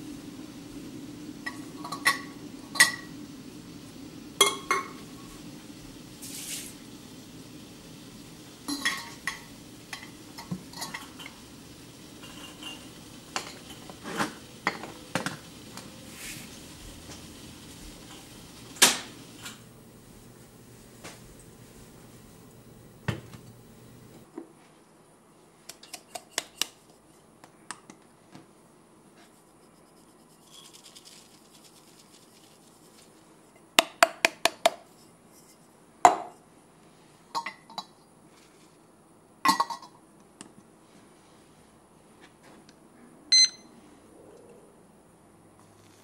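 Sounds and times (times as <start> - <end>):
short electronic beep: 43.3 - 43.7.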